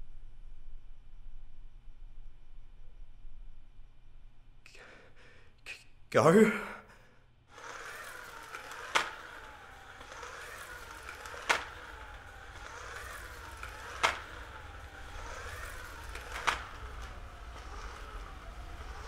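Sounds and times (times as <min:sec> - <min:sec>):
low electrical hum: 0:00.0 - 0:19.0
sharp clicks: 0:07.5 - 0:19.0.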